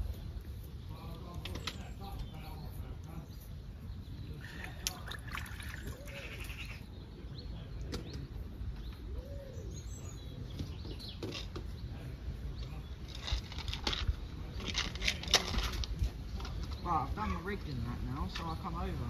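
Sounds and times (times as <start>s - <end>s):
wind rumbling on microphone: 0.0s - 19.0s
rustles and clicks: 12.5s - 17.4s.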